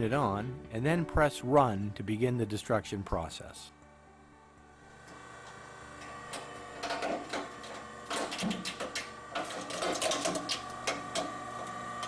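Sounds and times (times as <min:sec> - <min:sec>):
motor whine: 0:03.8 - 0:12.0
sharp cracks and clicks: 0:05.4 - 0:11.4.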